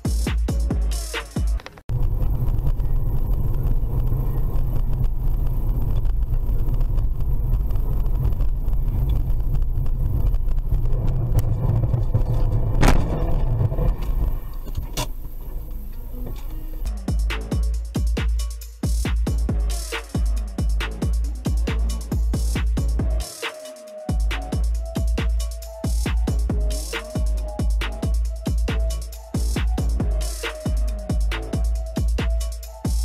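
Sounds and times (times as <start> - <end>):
car driving rumble: 1.8 - 16.9.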